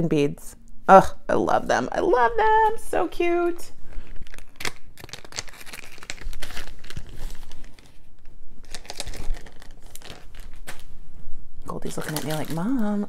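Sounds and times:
packaging crinkling: 0:03.8 - 0:11.0, 0:11.8 - 0:13.0.

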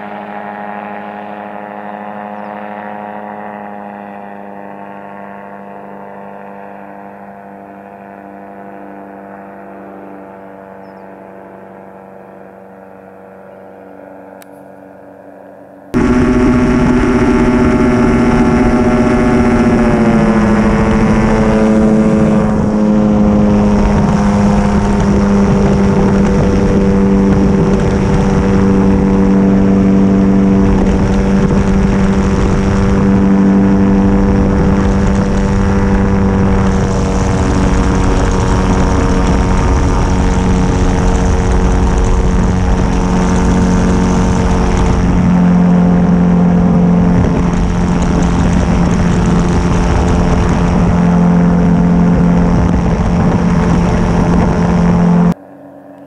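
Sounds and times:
aircraft engine drone: 0:00.0 - 0:56.0
wind rushing over microphone: 0:16.0 - 0:55.4.

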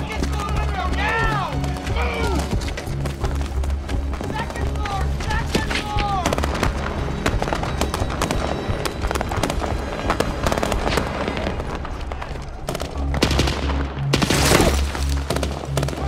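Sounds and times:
low droning music score: 0:00.0 - 0:16.0
rapid gunfire: 0:12.7 - 0:16.0.

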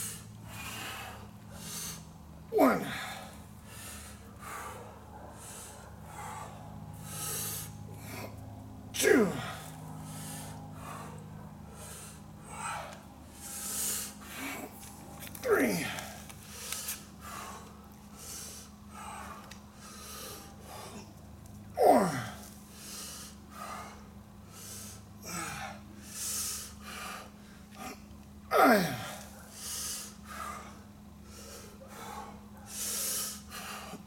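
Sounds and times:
man breathing hard: 0:00.0 - 0:34.0
man grunting: 0:02.5 - 0:03.4, 0:09.0 - 0:09.7, 0:15.4 - 0:16.2, 0:21.8 - 0:22.4, 0:25.2 - 0:25.8, 0:27.8 - 0:29.3.

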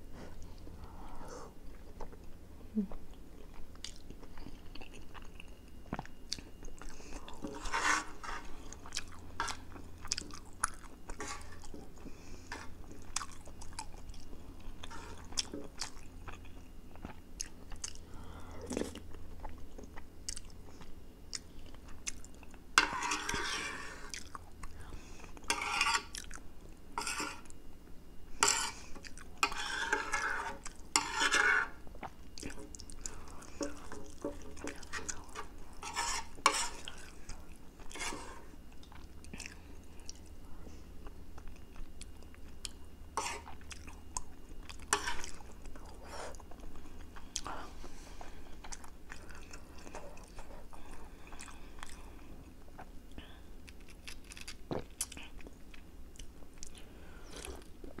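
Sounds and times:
fork scraping and clinking on plate: 0:22.8 - 0:24.1, 0:25.5 - 0:26.1, 0:27.0 - 0:27.5, 0:28.4 - 0:28.8, 0:29.4 - 0:31.8, 0:33.6 - 0:36.9
wet chewing: 0:25.4 - 0:26.4, 0:41.4 - 0:47.5.

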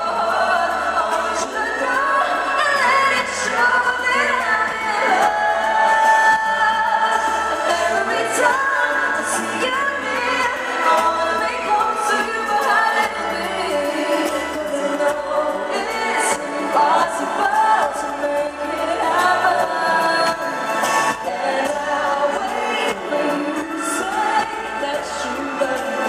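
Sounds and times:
amplified backing music: 0:00.0 - 0:26.0
woman singing: 0:00.0 - 0:26.0.

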